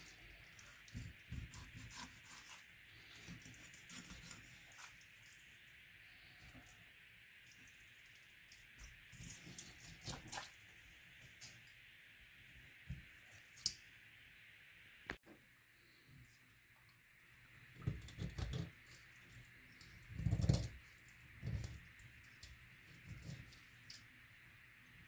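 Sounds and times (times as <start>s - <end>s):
faint steady hiss: 0.0s - 25.0s
knife scraping fish bones: 0.5s - 5.0s.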